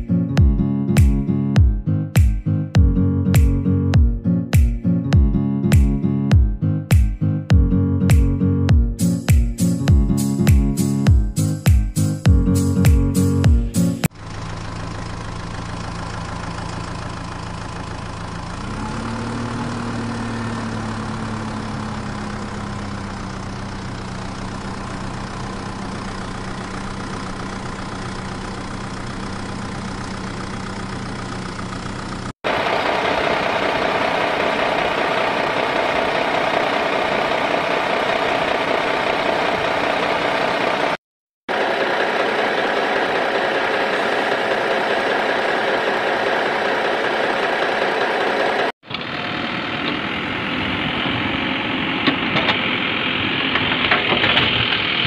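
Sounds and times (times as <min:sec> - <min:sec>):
engine idling hum: 0:12.3 - 0:55.0
loud rough engine: 0:13.2 - 0:55.0.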